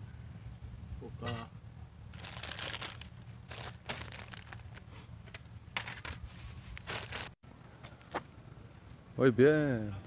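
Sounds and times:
plastic packaging crinkling: 0:02.1 - 0:04.9, 0:05.8 - 0:07.4.

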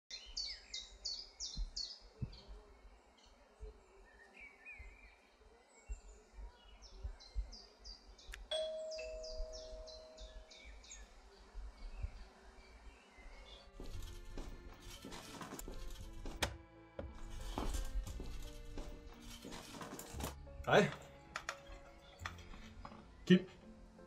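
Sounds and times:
small birds chirping: 0:00.1 - 0:15.4, 0:21.5 - 0:24.0
two-tone doorbell chime: 0:08.5 - 0:10.7.

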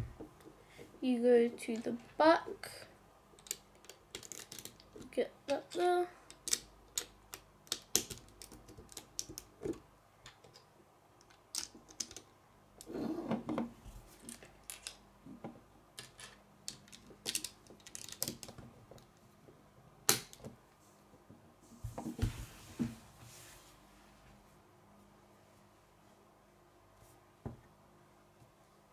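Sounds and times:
plastic bricks clicking together: 0:03.4 - 0:05.1, 0:06.3 - 0:12.3, 0:14.2 - 0:15.0, 0:16.0 - 0:18.6.

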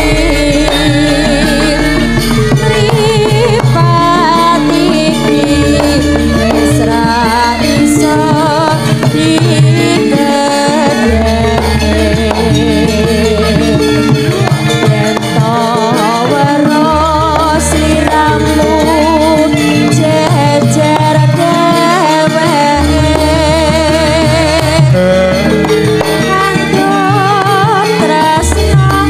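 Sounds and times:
deep gong tones ringing: 0:00.0 - 0:08.4
drum strokes: 0:00.0 - 0:29.0
struck metal notes: 0:00.0 - 0:29.0
woman singing ornamented vocal: 0:00.0 - 0:29.0.

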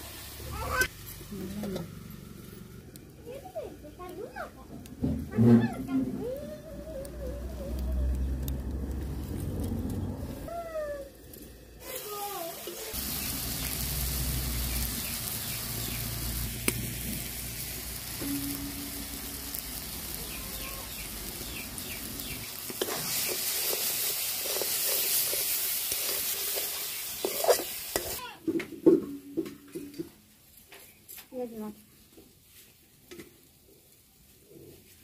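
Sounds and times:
sauce sizzling in a pan: 0:00.0 - 0:09.1, 0:11.7 - 0:28.4
spatula scraping a pan: 0:22.6 - 0:28.2.

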